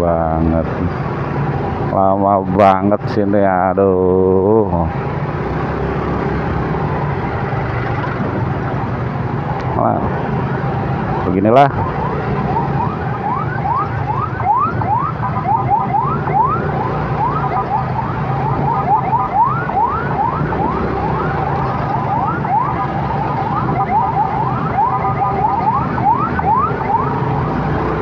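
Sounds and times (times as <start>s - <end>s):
engines in traffic: 0.0s - 28.0s
electronic siren sweeping: 11.1s - 28.0s.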